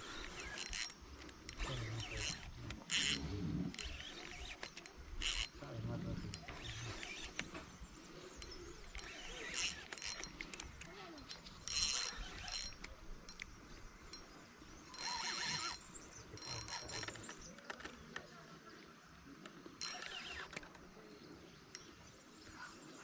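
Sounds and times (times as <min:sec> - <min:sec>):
fishing reel whirring and clicking: 0:00.0 - 0:14.3, 0:14.9 - 0:17.9, 0:19.8 - 0:20.8.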